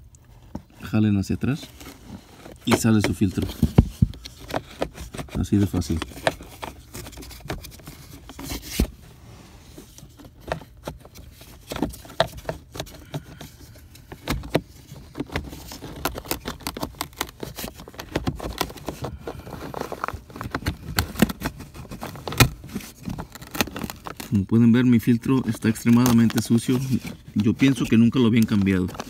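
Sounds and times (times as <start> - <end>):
plastic filter housing handling noise: 9.9 - 24.3.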